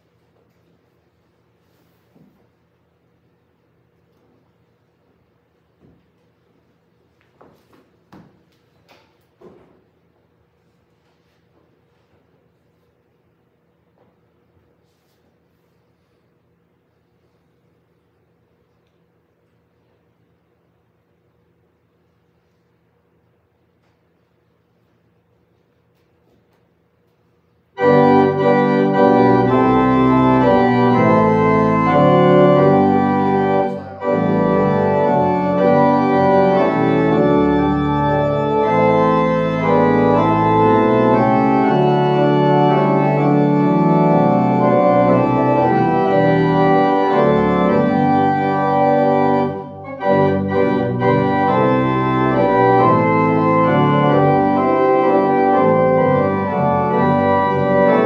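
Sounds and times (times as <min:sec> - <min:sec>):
organ playing sustained chords: 0:27.6 - 0:58.0.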